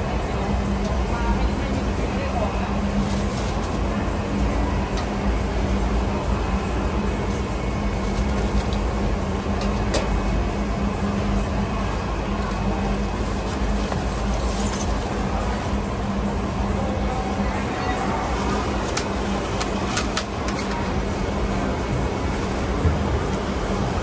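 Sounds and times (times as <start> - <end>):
market din: 11.7 - 24.0.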